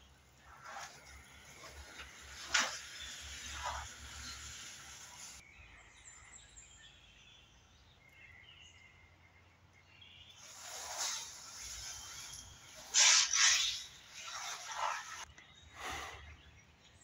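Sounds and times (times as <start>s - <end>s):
rain hissing: 0.5s - 5.4s, 10.4s - 15.3s.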